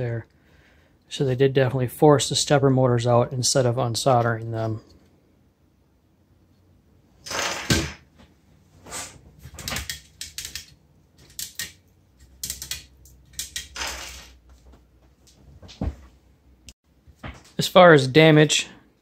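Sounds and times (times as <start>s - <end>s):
plastic parts clicking and rattling: 9.5s - 14.4s.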